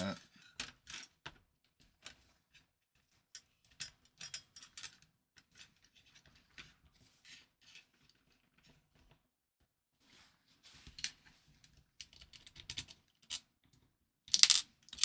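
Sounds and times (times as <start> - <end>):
small parts clicking and tapping: 3.3 - 6.8, 11.0 - 15.0.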